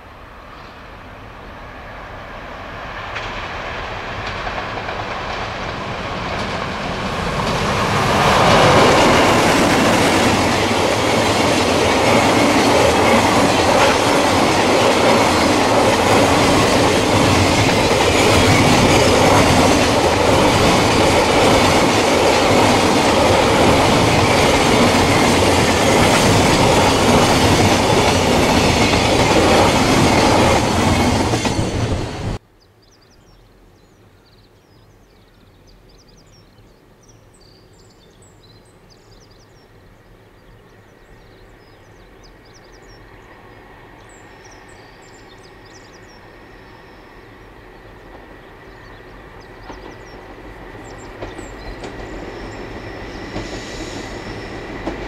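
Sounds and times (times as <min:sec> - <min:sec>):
approaching train: 0:00.0 - 0:32.4, 0:37.4 - 0:55.0
freight wagons rolling on rails: 0:04.2 - 0:32.4.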